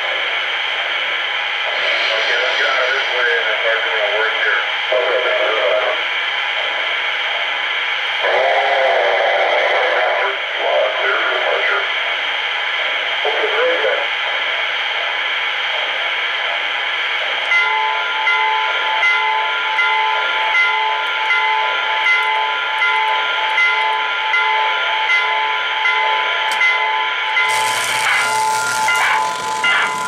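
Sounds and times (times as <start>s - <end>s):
steady hiss of steam: 0.0s - 6.0s
locomotive bell ringing: 17.5s - 30.0s.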